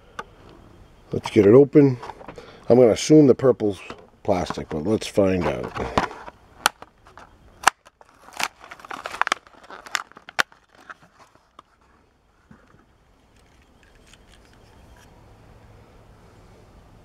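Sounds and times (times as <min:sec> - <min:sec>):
plastic blister crackling: 0:03.8 - 0:11.9
cardboard ripping: 0:07.7 - 0:11.5.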